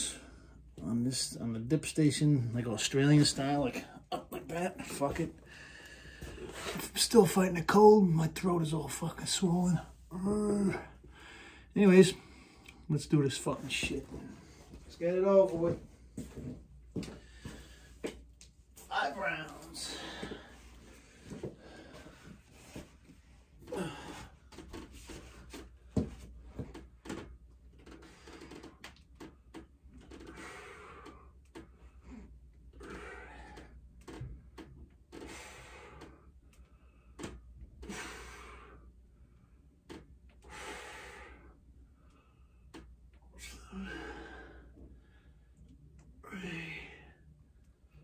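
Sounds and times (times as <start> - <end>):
man breathing hard: 5.3 - 6.8, 10.2 - 12.9, 16.2 - 18.3, 19.6 - 22.9, 23.5 - 26.1, 30.2 - 34.2, 35.2 - 39.7, 40.4 - 42.7, 43.4 - 45.6, 46.2 - 47.3.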